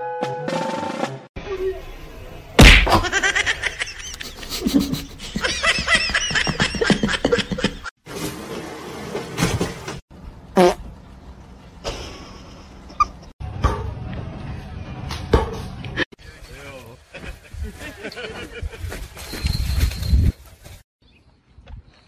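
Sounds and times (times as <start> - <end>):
music: 0.0 - 1.3
loud smack: 2.6 - 3.1
person laughing: 2.9 - 7.9.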